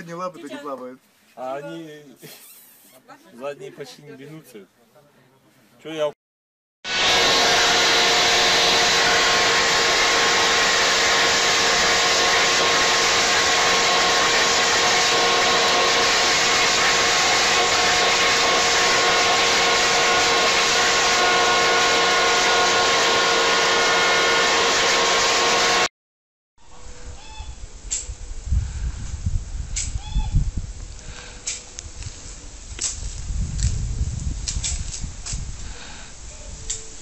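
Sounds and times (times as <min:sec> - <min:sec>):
leaf blower running: 0:06.9 - 0:25.9.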